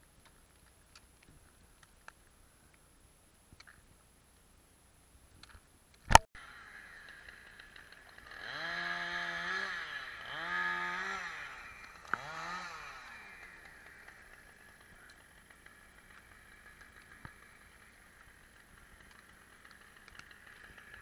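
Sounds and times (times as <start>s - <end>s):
engine revving: 6.4s - 21.0s.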